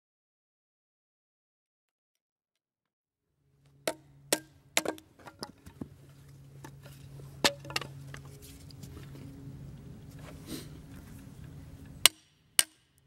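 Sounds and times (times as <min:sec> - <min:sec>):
low hum: 0:03.4 - 0:13.0
hatchet splitting wood: 0:03.9 - 0:05.9, 0:12.0 - 0:13.0.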